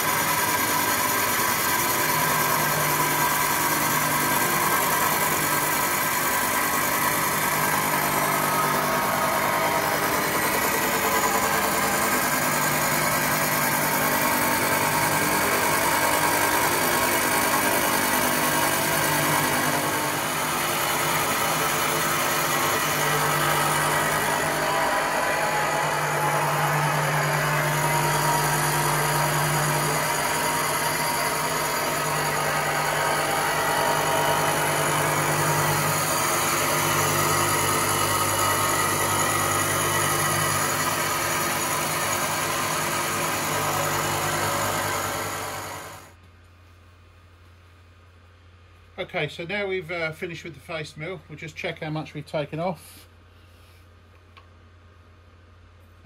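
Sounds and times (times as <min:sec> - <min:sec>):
milling machine cutting metal: 0:00.0 - 0:46.1
low machine hum: 0:00.0 - 0:47.9.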